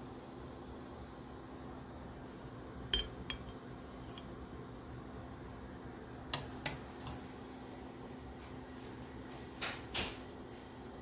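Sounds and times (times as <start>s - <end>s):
steady low hum: 0.0s - 11.0s
metal spoon clinking on dishes: 2.9s - 4.3s.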